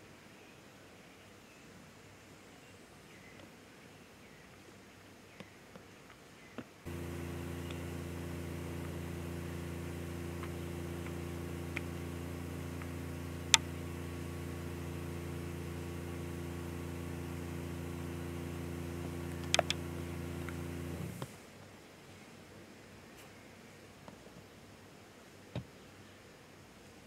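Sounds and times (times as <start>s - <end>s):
low mechanical hum: 6.4s - 22.4s
sharp clicks: 6.9s - 9.0s, 10.3s - 12.0s, 12.7s - 13.8s, 19.0s - 21.3s.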